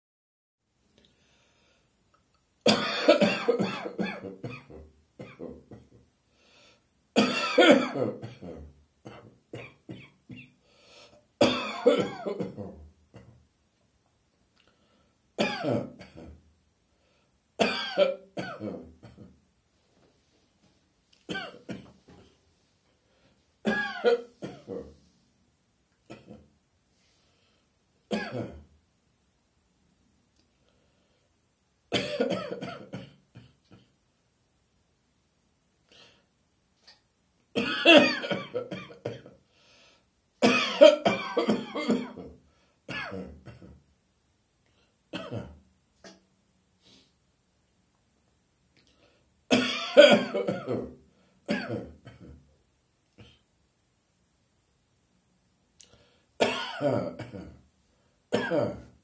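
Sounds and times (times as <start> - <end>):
person coughing: 2.7 - 6.0, 7.2 - 10.6, 11.4 - 13.4, 15.4 - 16.4, 17.6 - 19.3, 21.3 - 21.9, 23.7 - 25.0, 28.1 - 28.7, 31.9 - 33.8, 37.6 - 39.3, 40.4 - 43.8, 45.2 - 46.2, 49.5 - 52.4, 56.4 - 57.6, 58.3 - 58.9.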